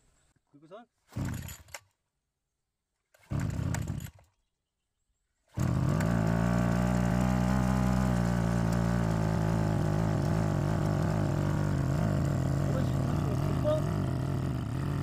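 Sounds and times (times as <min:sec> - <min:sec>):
brush cutter engine running: 0:01.1 - 0:01.7, 0:03.2 - 0:04.2, 0:05.5 - 0:15.0.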